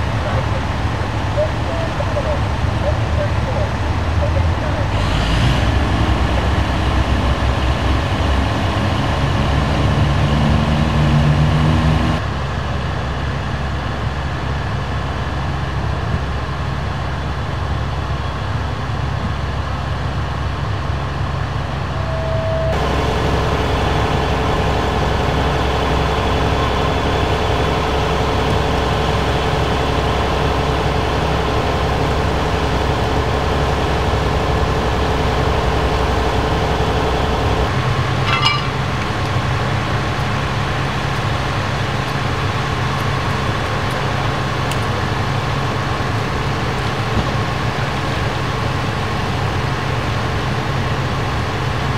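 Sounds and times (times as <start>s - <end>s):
diesel engines idling: 0.0s - 51.9s
steady hum: 19.6s - 51.6s.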